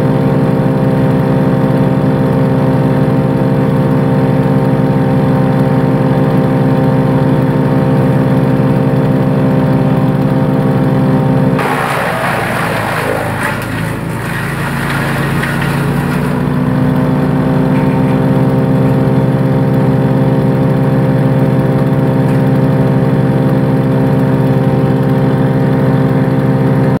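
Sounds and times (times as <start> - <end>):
wood chipper engine running: 0.0 - 27.0
chipper crunching bamboo: 11.6 - 19.0.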